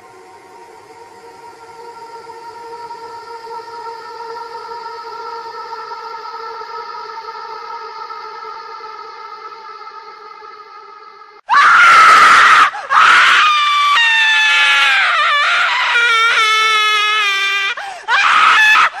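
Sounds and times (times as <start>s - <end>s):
high-pitched screaming: 0.0s - 19.0s.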